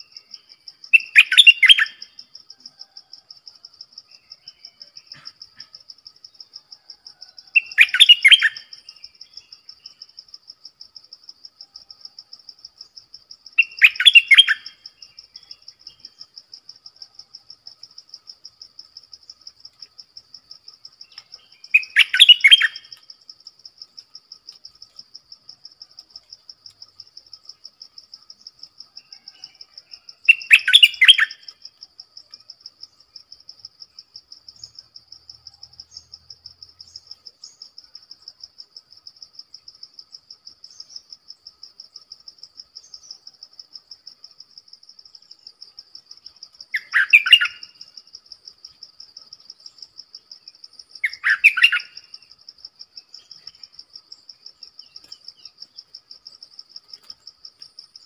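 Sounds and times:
bird singing: 0:00.0 - 0:10.3, 0:12.7 - 0:18.0, 0:20.6 - 0:24.0, 0:26.8 - 0:33.3, 0:33.9 - 0:38.0, 0:45.1 - 0:48.0, 0:49.2 - 0:57.2
high pulsing insect trill: 0:00.0 - 0:58.0.

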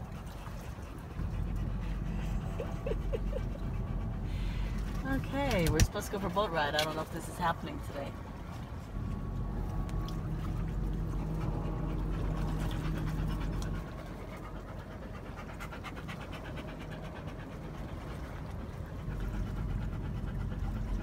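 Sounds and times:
low hum: 0:00.0 - 0:21.0
dog panting: 0:00.1 - 0:05.6, 0:10.2 - 0:21.0.

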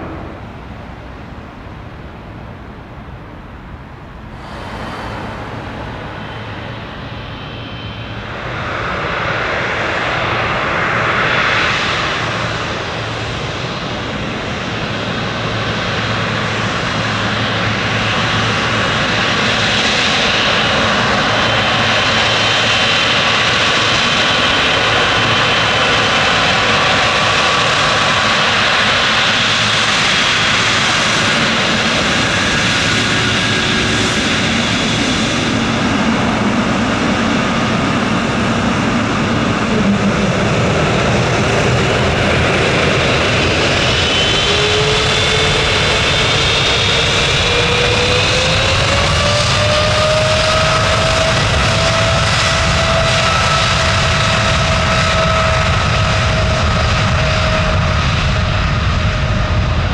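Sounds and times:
jet engines roaring: 0:00.0 - 0:59.9
thin high whine: 0:04.4 - 0:08.9.

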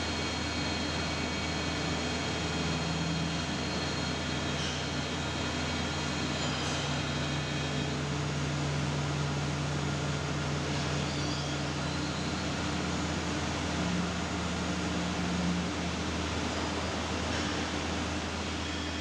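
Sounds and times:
machine motors humming and whirring: 0:00.0 - 0:19.0.

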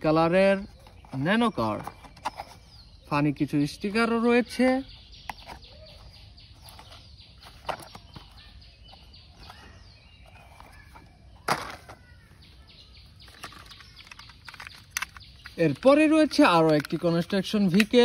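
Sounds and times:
birds chirping faintly: 0:00.0 - 0:18.0
plastic toys clattering: 0:00.3 - 0:02.8, 0:05.1 - 0:12.2, 0:13.0 - 0:18.0
plastic toys clicking and knocking: 0:05.1 - 0:09.6, 0:10.3 - 0:12.1, 0:13.1 - 0:18.0.

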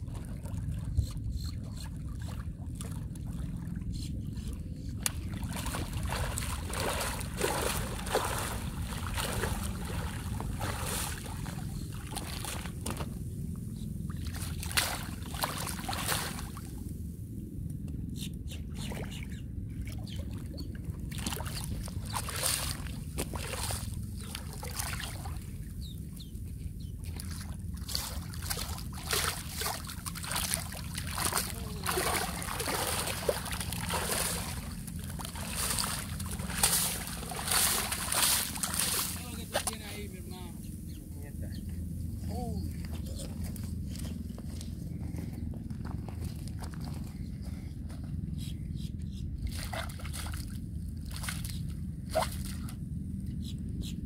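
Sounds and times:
low rumble: 0:00.0 - 0:49.6
shark splashing in water: 0:28.4 - 0:39.2.

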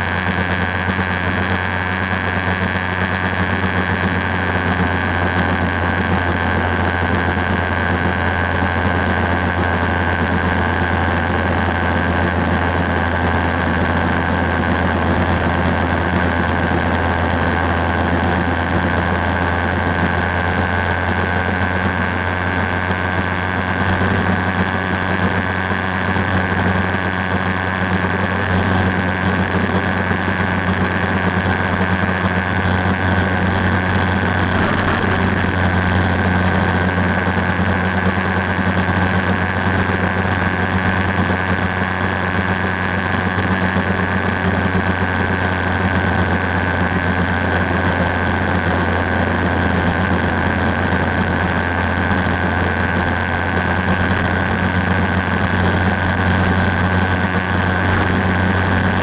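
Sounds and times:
motorcycle engine cruising: 0:00.0 - 0:59.0
wind and road noise: 0:24.4 - 0:39.6, 0:48.0 - 0:59.0.

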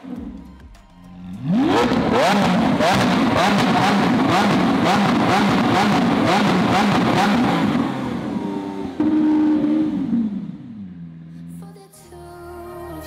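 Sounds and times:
sports car engine revving: 0:01.2 - 0:11.3.

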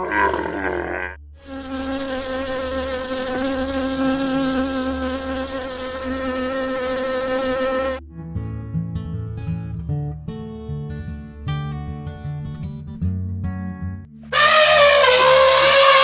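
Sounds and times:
wasps buzzing: 0:01.4 - 0:08.0, 0:14.3 - 0:16.0.

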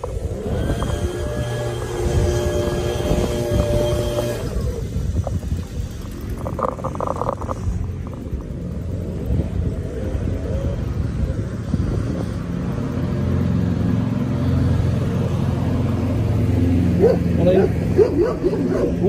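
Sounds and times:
bicycle tyres rolling on paving: 0:00.0 - 0:12.5
wind on microphone: 0:00.0 - 0:19.0.

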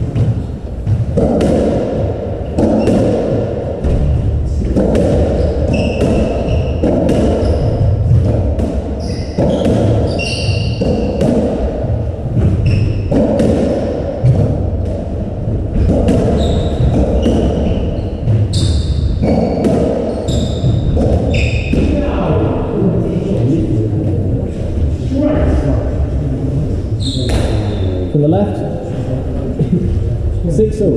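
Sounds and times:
low background noise: 0:00.0 - 0:30.9
shoes squeaking on wooden floor: 0:05.2 - 0:08.2, 0:09.0 - 0:11.3, 0:12.4 - 0:13.2, 0:15.8 - 0:22.0.

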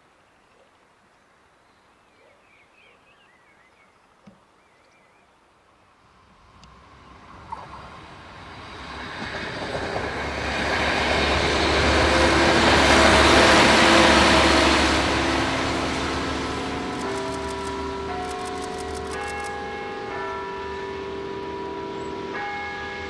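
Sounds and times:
railcar engine drone: 0:05.9 - 0:23.0
wheels rushing on rails: 0:06.2 - 0:23.0
bells ringing: 0:16.5 - 0:23.0.

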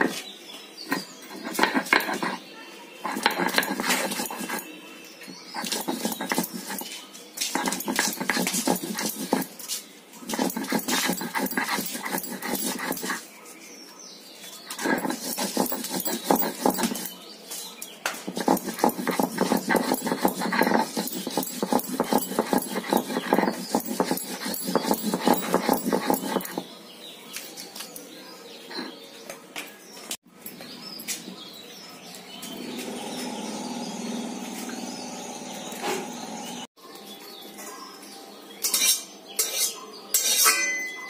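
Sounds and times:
stone grinding on stone: 0:00.9 - 0:02.4, 0:03.0 - 0:04.7, 0:05.3 - 0:09.6, 0:10.2 - 0:13.2, 0:14.7 - 0:17.2, 0:18.3 - 0:26.7, 0:28.7 - 0:29.0
stone scraping paste: 0:00.9 - 0:02.4, 0:03.0 - 0:04.7, 0:05.3 - 0:13.3, 0:14.7 - 0:17.2, 0:18.3 - 0:26.7, 0:28.7 - 0:29.0.

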